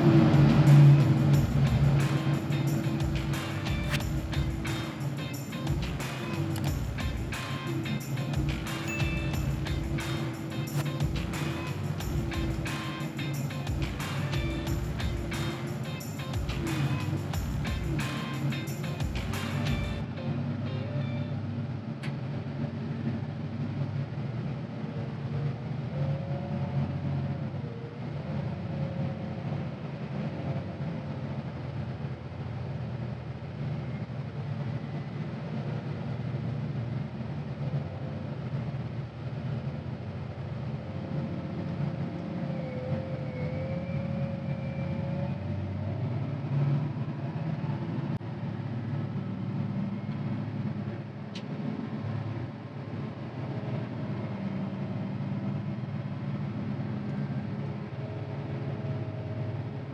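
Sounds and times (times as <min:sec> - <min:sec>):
diesel engine running: 0:00.0 - 0:59.9
faint wavering whine: 0:39.8 - 0:51.1.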